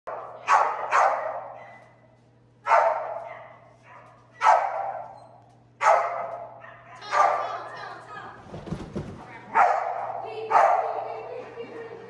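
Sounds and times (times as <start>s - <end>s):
dog barking with echo: 0.1s - 1.9s, 2.6s - 5.1s, 5.8s - 7.7s, 9.5s - 11.0s.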